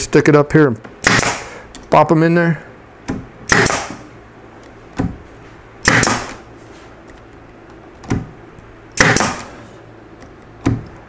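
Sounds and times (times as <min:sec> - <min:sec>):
nail gun shots: 0:01.0 - 0:01.6, 0:03.4 - 0:04.1, 0:05.8 - 0:06.4, 0:09.0 - 0:09.6.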